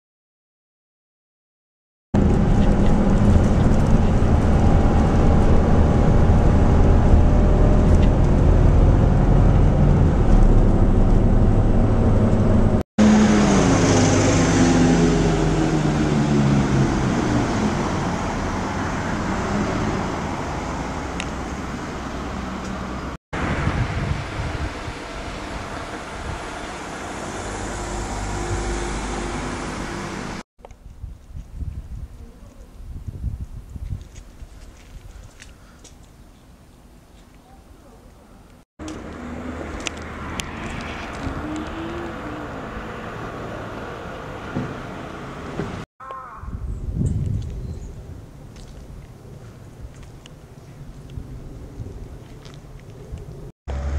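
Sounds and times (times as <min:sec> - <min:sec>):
bus engine running: 0:02.2 - 0:30.4, 0:53.7 - 0:53.9
street traffic: 0:02.2 - 0:30.8, 0:35.3 - 0:53.9.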